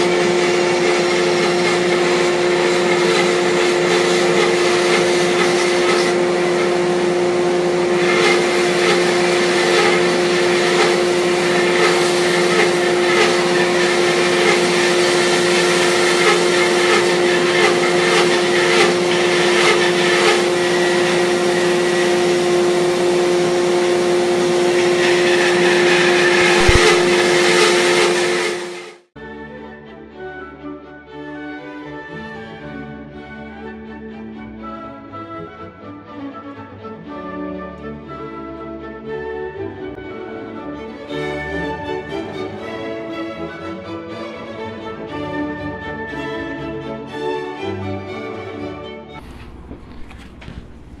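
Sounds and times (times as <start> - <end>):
bandsaw cutting log: 0.0 - 28.8, 49.2 - 51.0
music: 29.2 - 49.2.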